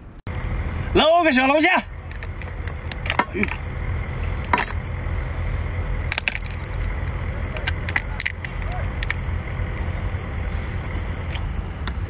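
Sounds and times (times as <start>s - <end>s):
low rumble: 0.0s - 12.0s
shell cracking and snapping: 2.1s - 3.6s, 6.0s - 9.9s.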